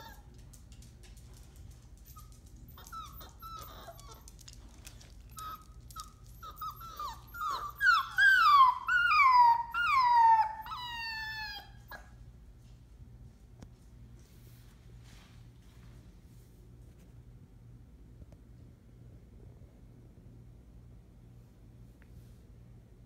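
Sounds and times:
puppies whimpering and whining: 0.0s - 0.3s, 2.0s - 12.2s.

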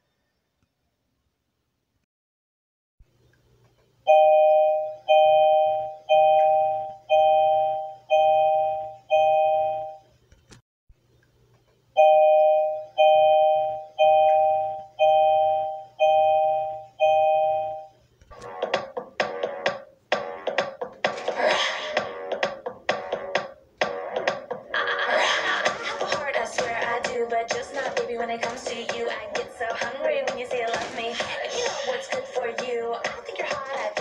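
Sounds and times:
loud beat: 18.4s - 34.0s.

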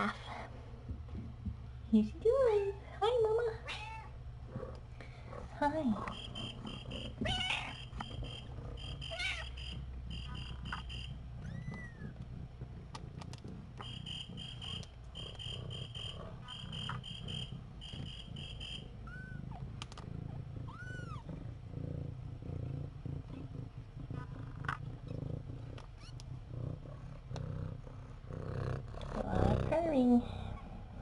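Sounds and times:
cat purring: 0.0s - 31.0s.

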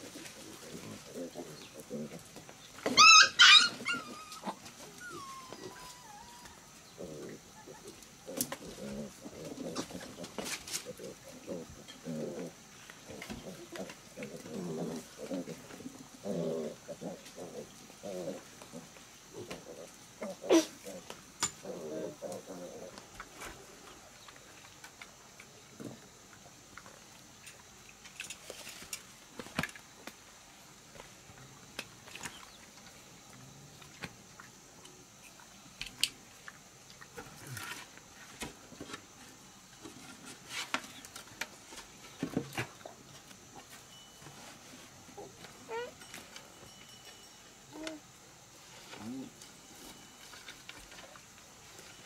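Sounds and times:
faint high hiss: 0.0s - 52.0s
piglets grunting: 7.0s - 23.0s.

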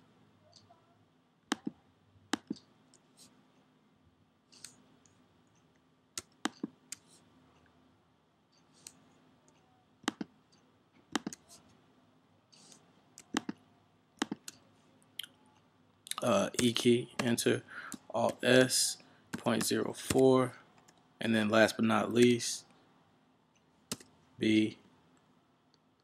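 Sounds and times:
faint steady hum: 0.0s - 26.0s
mouse and keyboard clicking: 2.4s - 2.7s, 6.2s - 7.1s, 10.0s - 11.4s, 12.6s - 13.6s, 14.2s - 14.6s.

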